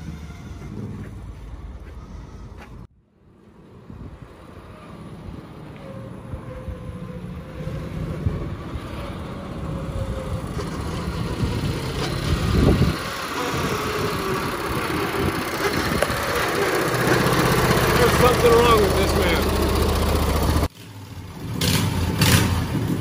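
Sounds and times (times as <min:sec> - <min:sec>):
mower engine running: 0:10.4 - 0:20.7.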